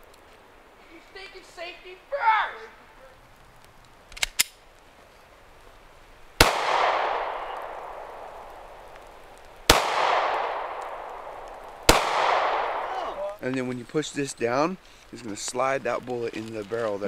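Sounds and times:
gunshot echo: 6.4 - 8.4, 9.7 - 13.2
pistol shots: 6.4 - 8.4, 9.7 - 13.0.

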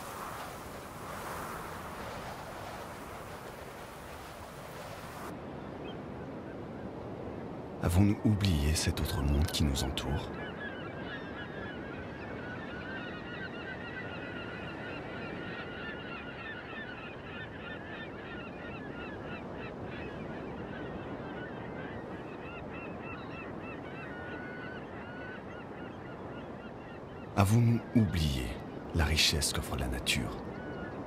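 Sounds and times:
seabird colony calling: 8.6 - 31.0.

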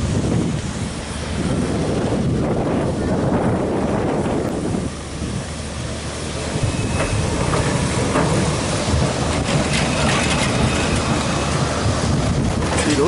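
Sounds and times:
tram wheels rumbling on rails: 0.0 - 13.0
wheels clicking over rail joints: 5.2 - 13.0.

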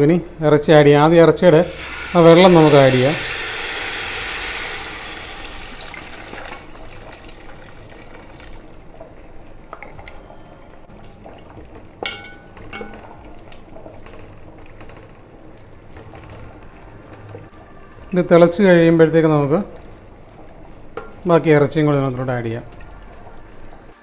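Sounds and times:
gravy bubbling: 1.4 - 24.0
liquid sizzling in hot pot: 1.5 - 8.9.

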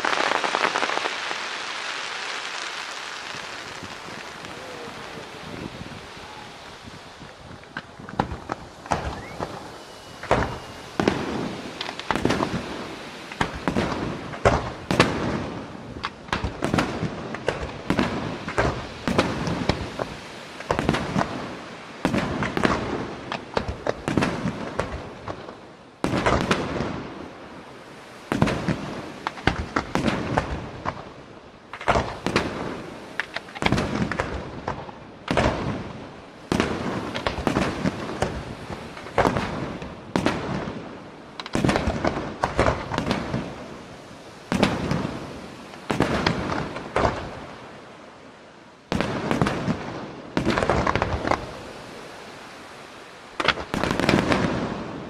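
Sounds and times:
firework shells bursting: 0.0 - 15.4.

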